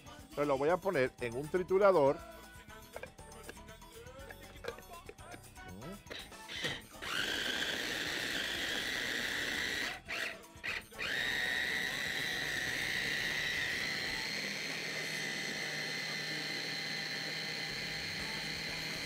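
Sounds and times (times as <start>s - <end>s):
food processor motor whining: 6.0s - 19.0s.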